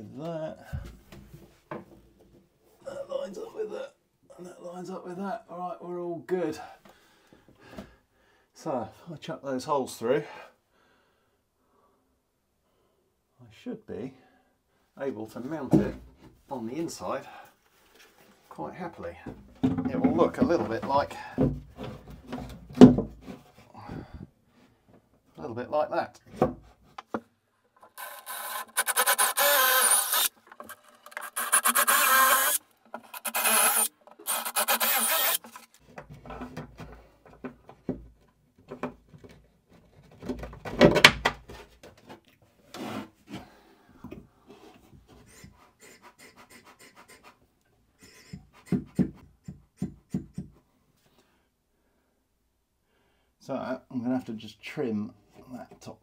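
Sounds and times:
power drill boring through plywood: 27.8 - 35.8.

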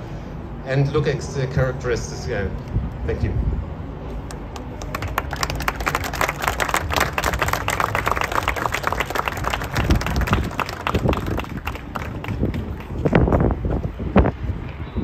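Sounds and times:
audience applauding: 4.3 - 13.3.

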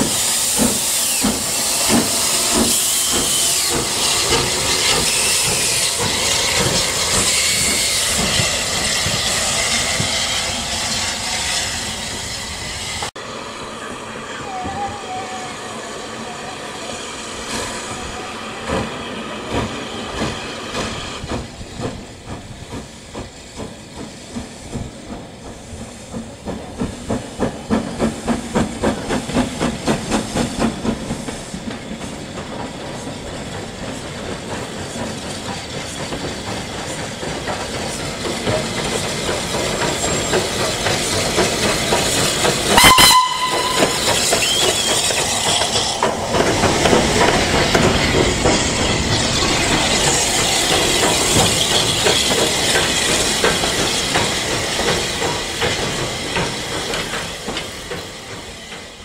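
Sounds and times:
steam hissing from locomotive: 0.0 - 59.0
steam locomotive exhaust chuffs: 0.0 - 59.0.

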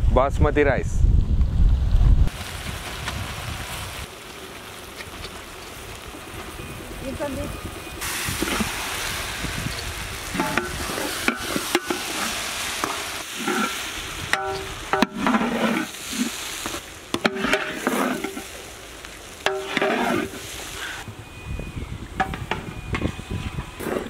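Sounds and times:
vegetables sizzling in a pot: 2.3 - 21.1
metal ladle scraping a pot: 10.3 - 16.4, 17.2 - 18.5, 19.5 - 21.0.

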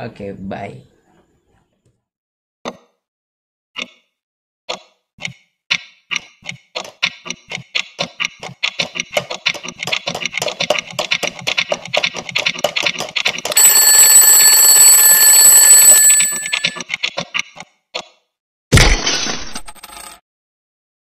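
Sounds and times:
alarm clock bell ringing: 13.6 - 16.8.

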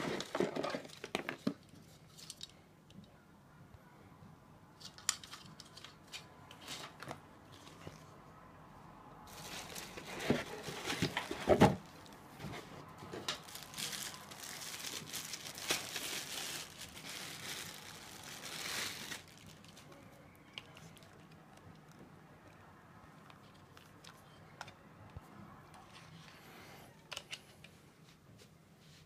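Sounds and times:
plastic bag crinkling: 9.3 - 12.6, 13.2 - 20.0.

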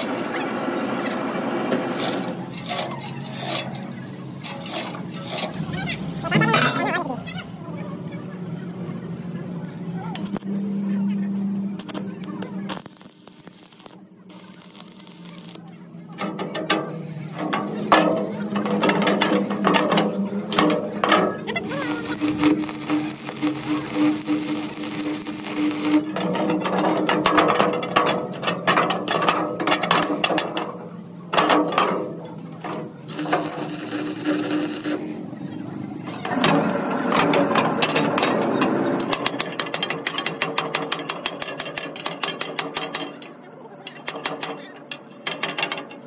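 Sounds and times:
welding arc crackling: 1.9 - 3.7, 10.2 - 10.5, 11.8 - 15.6, 21.6 - 26.2, 33.1 - 35.0.

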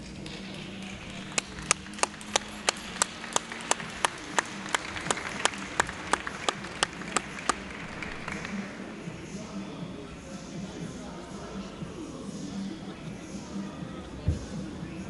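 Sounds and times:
rhythmic hand clapping: 0.0 - 9.6
low crowd hubbub: 0.0 - 15.0.

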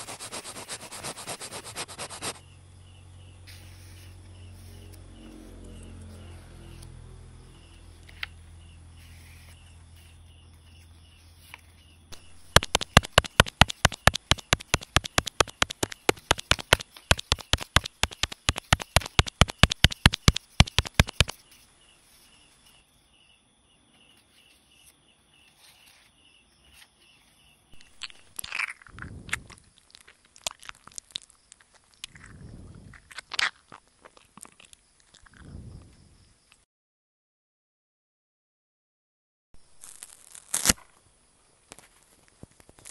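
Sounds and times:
pestle pounding in mortar: 12.2 - 21.4
crunchy rustles of salad: 27.8 - 35.5, 39.7 - 41.0.

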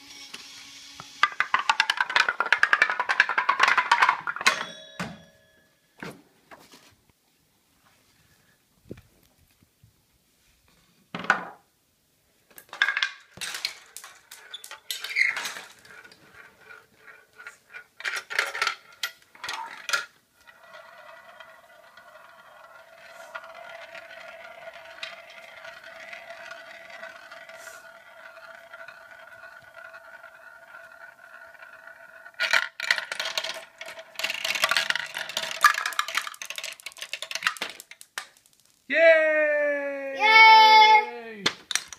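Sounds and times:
marble whirring in plastic funnel: 0.0 - 4.3, 13.4 - 38.9
marbles clattering down plastic run: 0.0 - 4.7, 12.6 - 38.9, 41.7 - 41.9.

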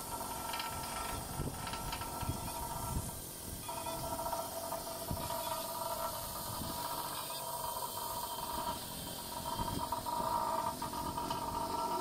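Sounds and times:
machinery humming: 0.0 - 12.0.

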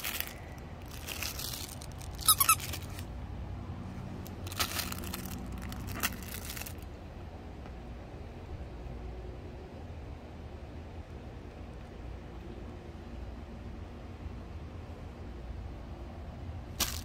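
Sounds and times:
toy rustling: 0.0 - 3.2, 3.9 - 6.8, 16.8 - 17.0
dog toy squeaking: 2.1 - 3.0.

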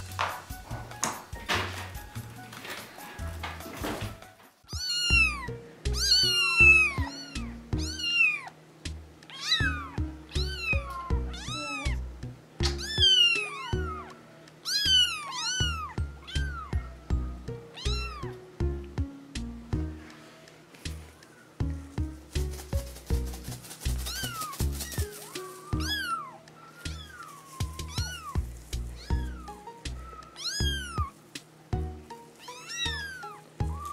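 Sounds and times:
background music: 0.0 - 33.9
kittens mewing: 4.7 - 8.6, 9.3 - 18.4, 23.9 - 31.2, 32.3 - 33.9.

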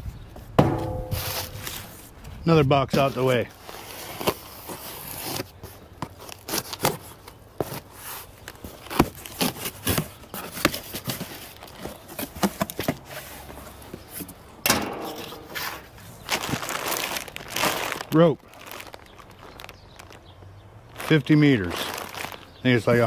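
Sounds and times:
cardboard boxes being handled: 2.9 - 14.5.

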